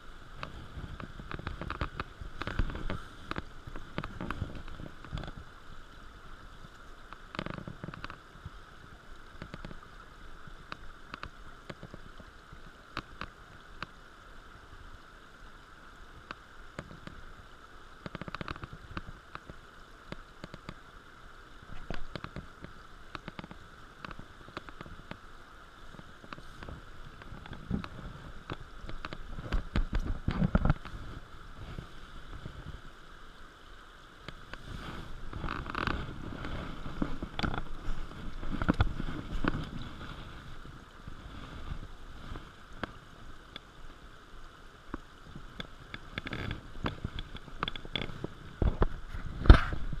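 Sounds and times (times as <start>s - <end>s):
water sloshing and splashing: 0.0s - 8.6s, 21.6s - 50.0s
steady stream flow: 0.0s - 50.0s.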